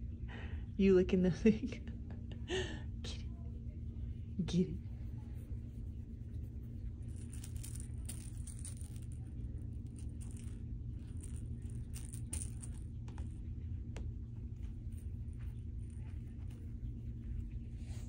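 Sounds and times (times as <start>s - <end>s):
low room hum: 0.0s - 18.0s
toy beads jingling and rattling: 7.0s - 12.9s.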